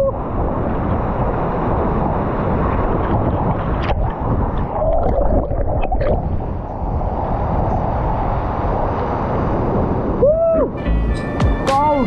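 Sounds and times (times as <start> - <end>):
underwater rushing water: 0.0 - 10.8
water splashes: 2.5 - 7.2.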